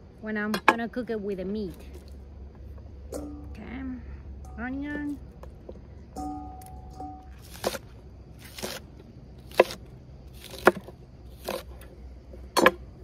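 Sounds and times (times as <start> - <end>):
knife chopping on wooden board: 9.5 - 9.8.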